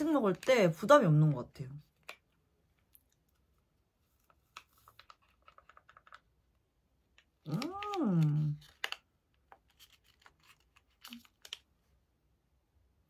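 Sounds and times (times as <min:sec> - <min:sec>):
person humming: 0:07.4 - 0:08.6
paper sachet clicking: 0:07.4 - 0:09.1, 0:09.7 - 0:11.7.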